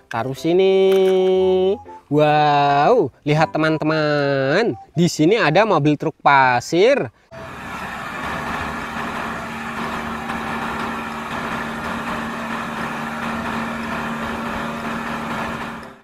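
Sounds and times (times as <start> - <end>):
low hum: 7.3 - 16.0
truck diesel engine running: 7.3 - 16.0.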